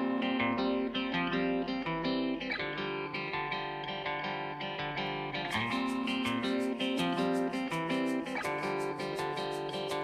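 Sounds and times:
guitar music: 0.0s - 10.0s
percussion beat: 5.5s - 10.0s.

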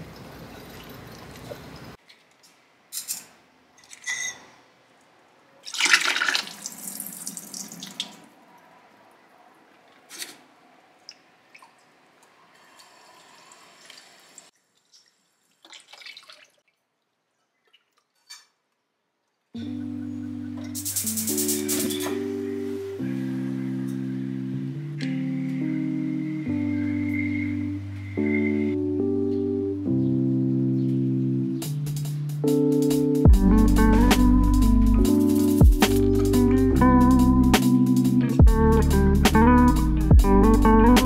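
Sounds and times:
liquid pouring into a steel sink: 5.6s - 8.2s
noodles dripping: 5.6s - 8.3s, 11.0s - 19.6s
short water splashes: 14.8s - 18.6s.

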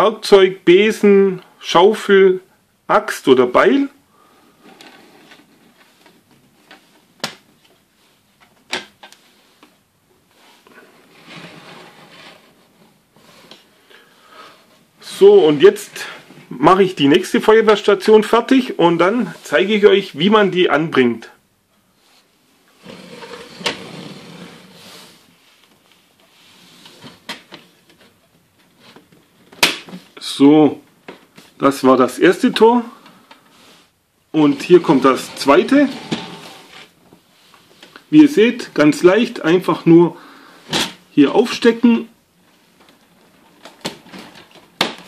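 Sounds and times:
plastic toy rustling scrape: 4.6s - 6.0s, 10.4s - 13.7s, 22.1s - 25.3s, 34.5s - 37.0s.

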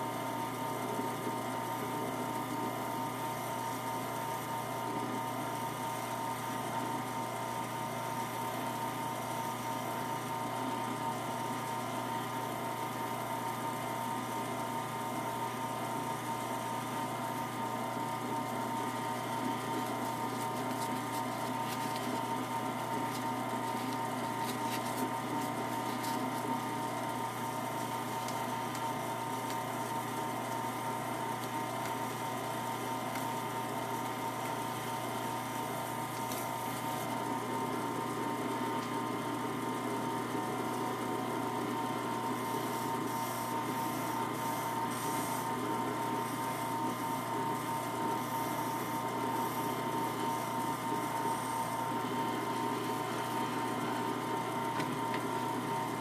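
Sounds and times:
wood lathe motor hum and whine: 0.0s - 56.0s.

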